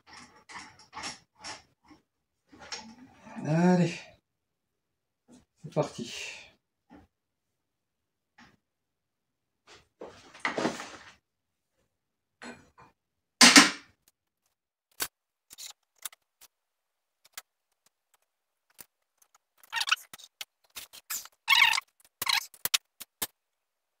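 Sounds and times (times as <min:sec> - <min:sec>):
metal parts clicking and clattering: 0:00.0 - 0:01.7.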